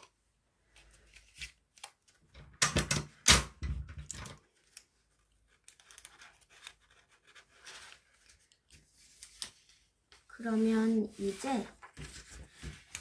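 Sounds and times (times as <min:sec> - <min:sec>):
faint paper rustling: 0:04.4 - 0:13.0.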